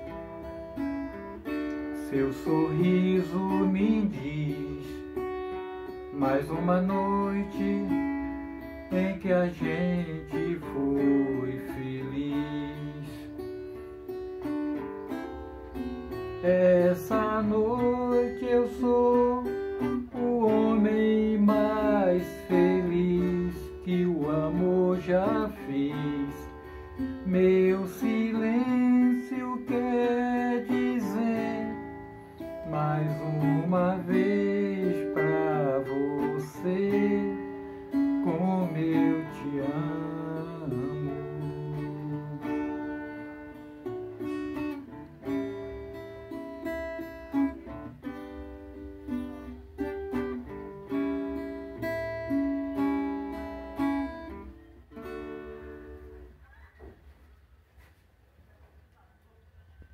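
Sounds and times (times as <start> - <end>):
acoustic guitar: 0.0 - 59.9
man singing: 1.9 - 5.2, 6.1 - 13.4, 16.4 - 43.2.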